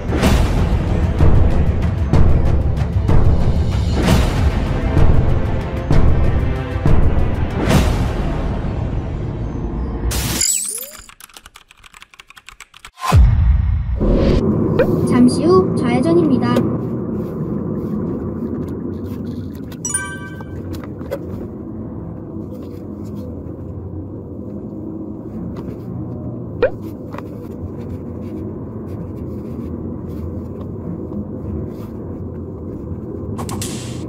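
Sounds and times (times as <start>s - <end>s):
car engine and road noise: 14.0s - 19.8s, 20.4s - 34.0s
brief high tone: 19.9s - 20.7s.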